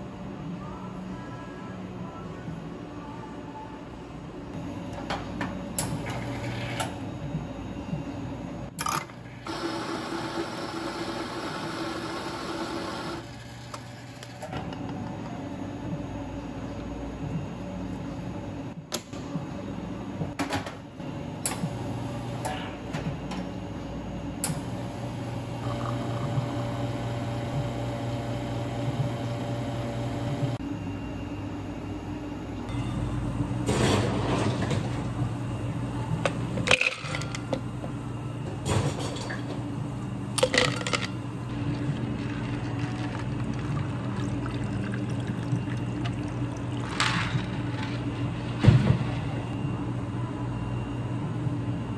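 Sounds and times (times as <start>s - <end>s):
espresso machine pump running: 9.4s - 14.3s, 24.7s - 30.6s.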